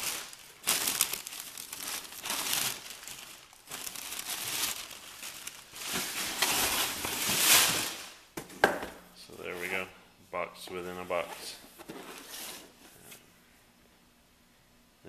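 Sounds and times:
packing paper rustling: 0:00.0 - 0:08.2.

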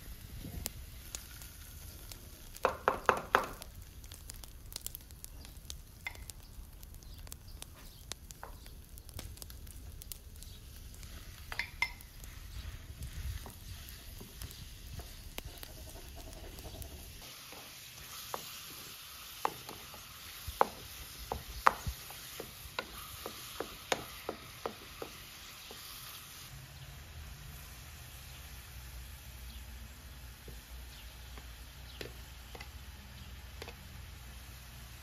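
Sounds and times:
meat sizzling in a pan: 0:00.0 - 0:35.0
wooden spoon tapping a pan: 0:02.5 - 0:03.7, 0:06.0 - 0:06.3, 0:11.5 - 0:12.1, 0:19.4 - 0:25.8.

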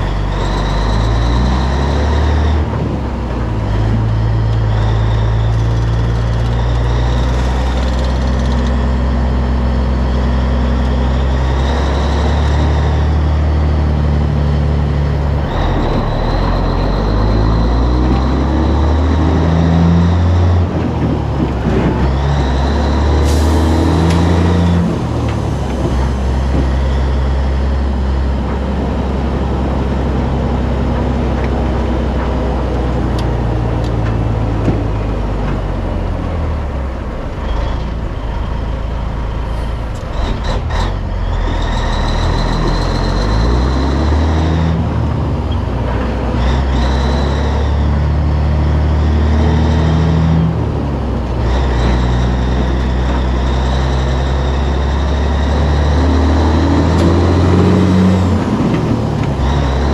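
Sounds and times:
diesel truck engine: 0:00.0 - 0:59.9.

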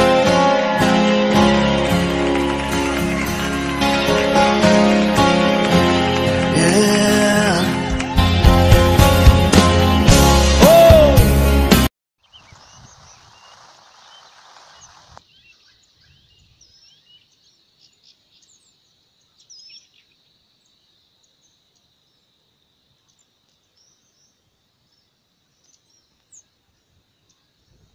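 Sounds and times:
small birds chirping: 0:12.2 - 0:27.9.

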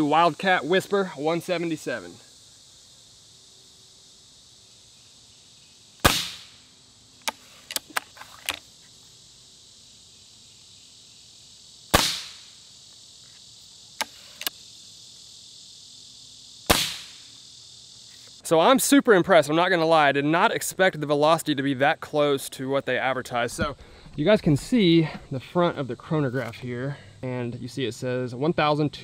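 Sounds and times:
air rifle shots: 0:06.0 - 0:06.6, 0:11.9 - 0:12.4, 0:16.7 - 0:17.2.

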